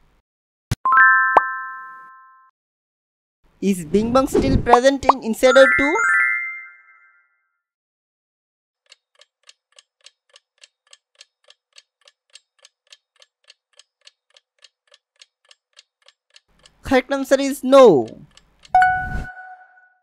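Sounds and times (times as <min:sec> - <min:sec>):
clock ticking: 0:08.8 - 0:19.2
short chime: 0:18.8 - 0:19.9.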